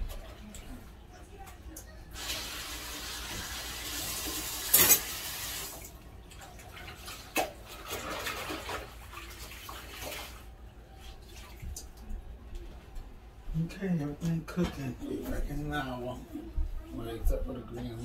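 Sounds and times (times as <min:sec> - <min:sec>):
running water: 0:00.0 - 0:12.2
soft water sounds: 0:05.6 - 0:13.3.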